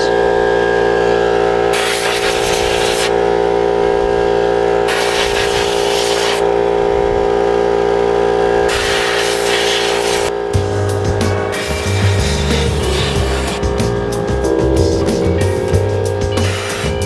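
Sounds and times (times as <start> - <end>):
air compressor running: 0.0 - 14.2
compressed air blasts: 1.8 - 3.1, 4.9 - 6.4, 8.7 - 10.3.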